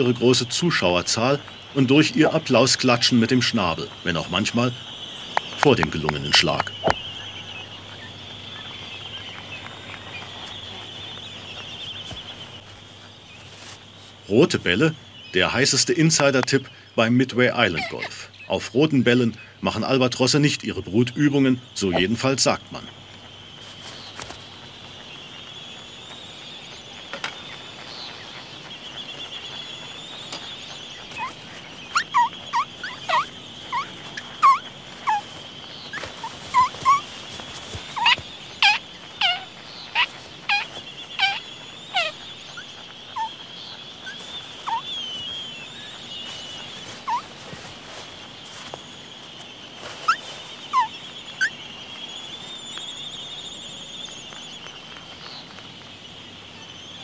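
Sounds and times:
albatross squeaky calls: 17.7 - 18.3, 31.1 - 43.4, 44.0 - 47.6, 50.0 - 51.6.

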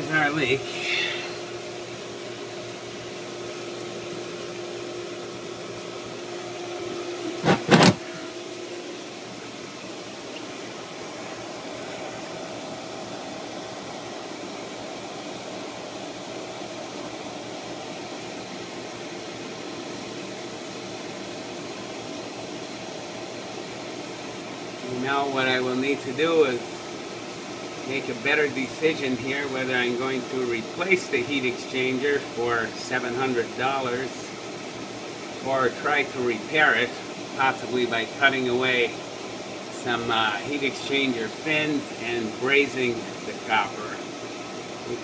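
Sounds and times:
pool pump humming: 0.0 - 45.0.

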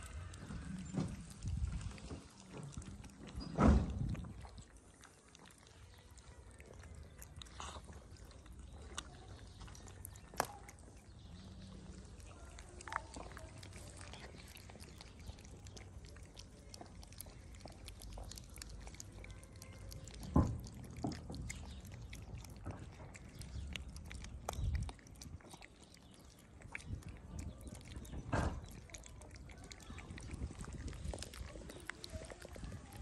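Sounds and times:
cats chewing wet food: 0.0 - 33.0
thump: 3.5 - 4.2, 28.3 - 28.6.

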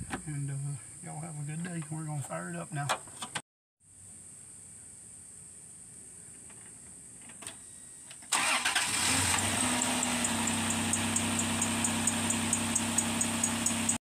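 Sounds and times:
car engine starting and idling: 8.2 - 14.0
engine ticking: 8.4 - 14.0.

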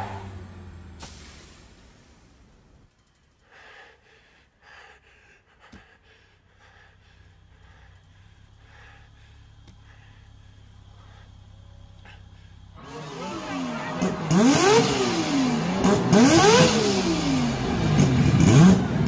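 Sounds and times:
faint low hum: 1.8 - 12.8
man breathing hard: 3.3 - 12.8.

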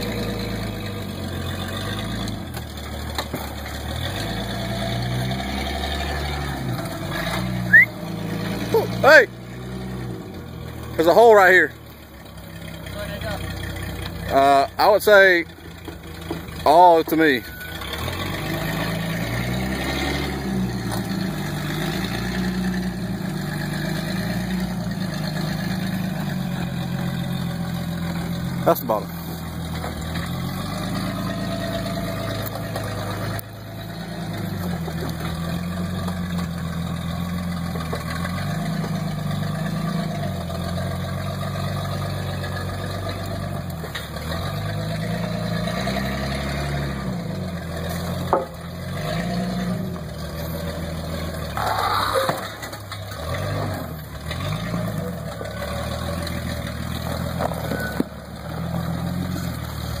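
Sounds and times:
engine revving at low speed: 0.0 - 60.0
tires knocking on pipes: 8.9 - 40.9, 47.6 - 60.0.

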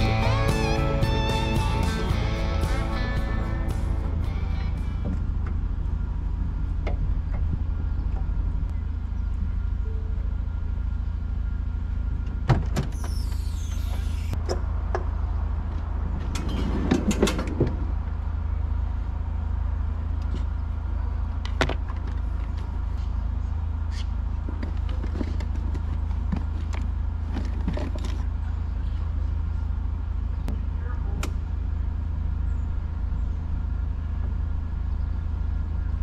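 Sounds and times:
low rumble: 0.0 - 24.5.

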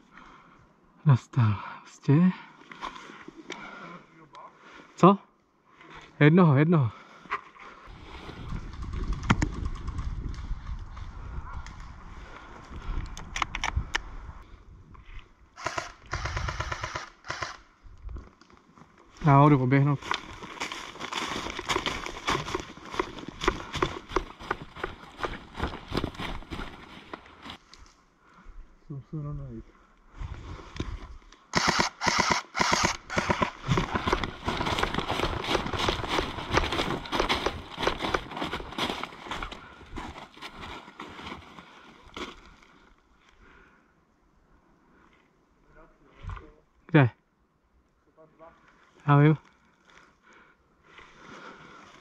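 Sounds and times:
airsoft automatic fire bursts: 15.6 - 17.6, 31.5 - 33.6
running footsteps through undergrowth: 18.1 - 27.8, 33.1 - 43.0
airsoft gun single shots: 31.6 - 33.6
gear rustling: 33.5 - 42.6.

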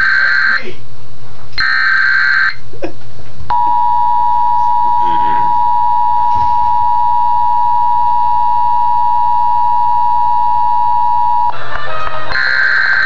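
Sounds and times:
buzzy data tones: 1.6 - 2.6, 12.3 - 13.0
two-tone alert signal on radio: 12.3 - 13.0.

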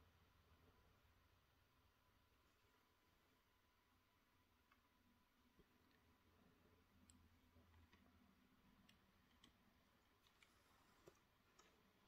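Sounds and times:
faint plastic clicks: 4.5 - 12.0.

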